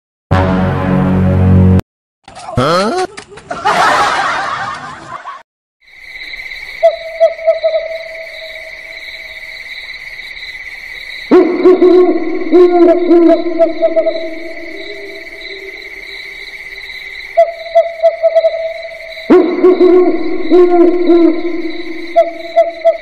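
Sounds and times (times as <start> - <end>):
high insect trill: 5.8 - 11.4, 12.1 - 23.0
owl hooting: 6.8 - 8.5, 11.3 - 15.8, 17.4 - 23.0.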